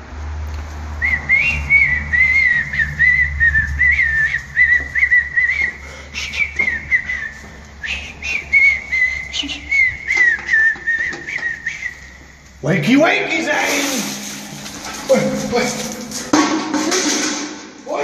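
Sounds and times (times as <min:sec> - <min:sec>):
person whistling a tune: 0:01.0 - 0:12.2.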